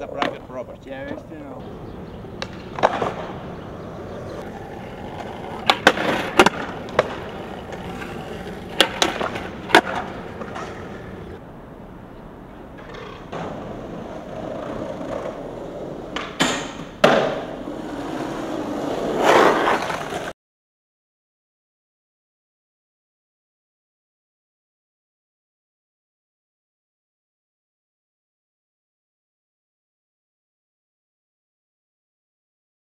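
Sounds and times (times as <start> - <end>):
skateboard wheels rolling on pavement: 0.0 - 20.4
skateboard tail cracks: 2.3 - 3.4, 4.1 - 11.4, 16.1 - 18.2.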